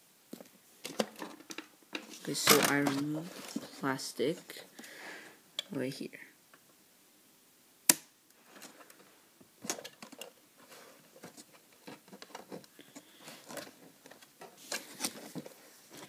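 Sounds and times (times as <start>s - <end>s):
box packaging handling noise: 0.8s - 3.9s, 8.4s - 16.0s.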